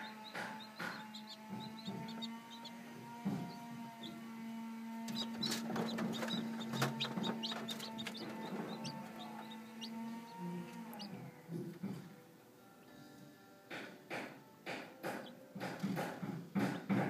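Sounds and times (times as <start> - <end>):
chicks peeping: 0.0 - 12.0, 14.7 - 17.0
eggshell clicking and rustling: 5.1 - 9.9.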